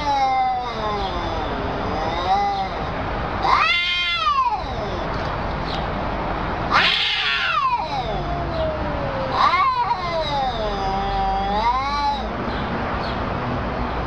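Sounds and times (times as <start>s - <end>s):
cats caterwauling: 0.0s - 5.4s, 6.6s - 12.5s.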